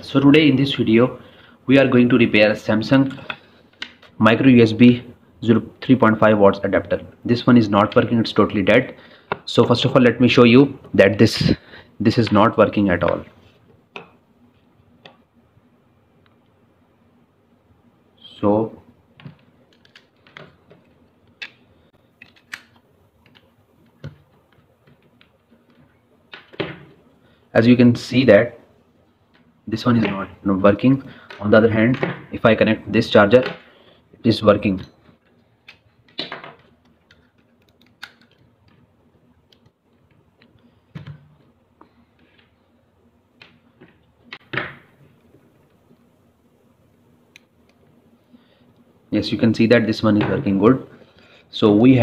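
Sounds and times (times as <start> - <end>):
cable handling: 19.2 - 26.7, 35.2 - 42.6.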